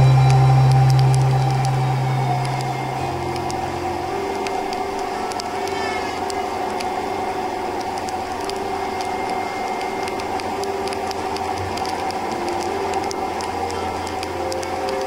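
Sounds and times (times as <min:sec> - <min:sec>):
motorcycle engine drone: 0:00.0 - 0:08.6
raindrops ticking on camera: 0:00.0 - 0:15.0.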